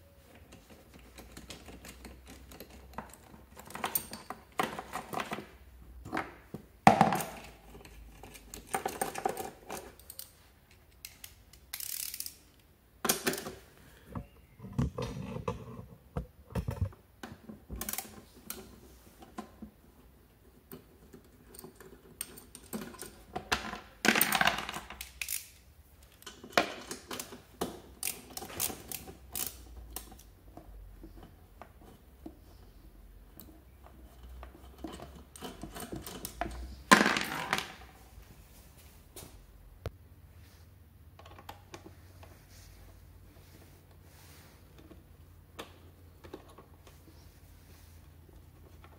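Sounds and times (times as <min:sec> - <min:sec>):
hands handling small parts and tools: 0:00.2 - 0:15.7, 0:20.6 - 0:39.4.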